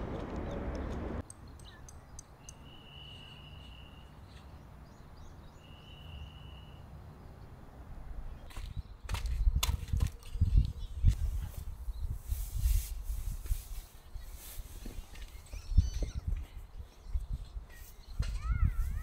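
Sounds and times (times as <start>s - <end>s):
birds chirping: 0.0s - 7.6s, 13.8s - 19.0s.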